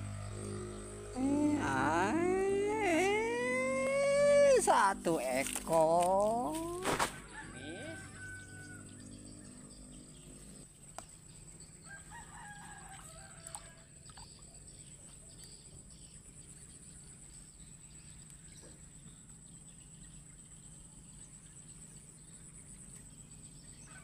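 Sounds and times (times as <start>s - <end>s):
steady low hum: 0.0s - 23.8s
faint rooster crowing: 7.1s - 9.2s, 11.8s - 14.0s, 23.8s - 24.0s.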